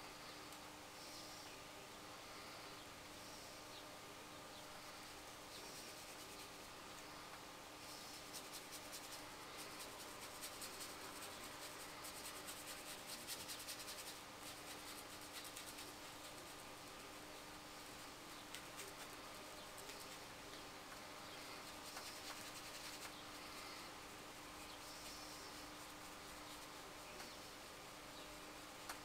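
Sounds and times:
low steady hum: 0.0 - 29.0
paintbrush scratching: 5.5 - 6.7, 7.8 - 17.1, 17.8 - 20.3, 21.3 - 23.8, 24.6 - 27.6.

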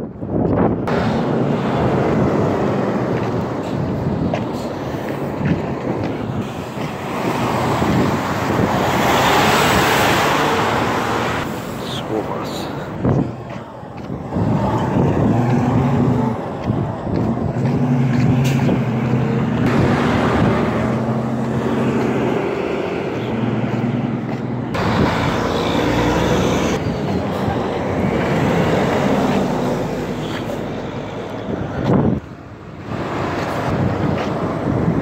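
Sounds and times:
diesel trucks driving past: 0.0 - 35.0
road noise: 0.0 - 35.0.

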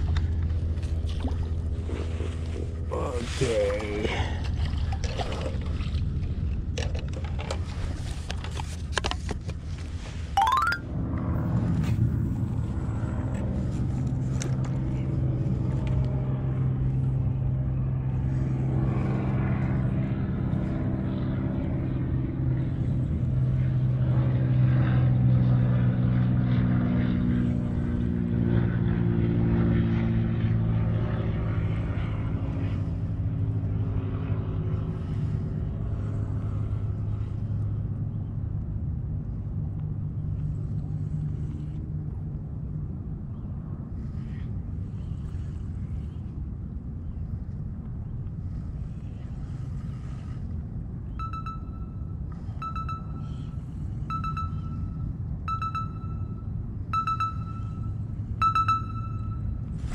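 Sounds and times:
low engine drone: 0.0 - 59.9.

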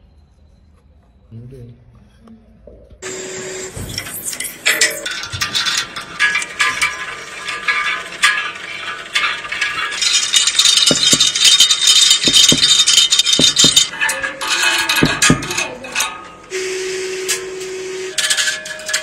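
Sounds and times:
small plastic parts clicking and rattling: 4.0 - 16.2.

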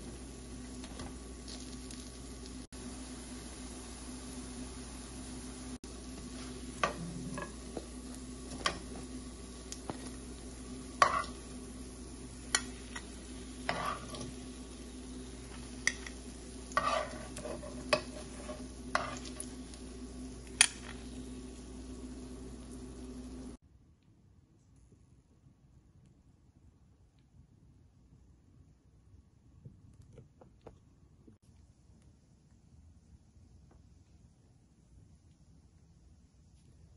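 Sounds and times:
kebabs sizzling in oil: 0.0 - 23.6
metal spatula striking a pan: 11.0 - 11.4, 12.5 - 13.1.

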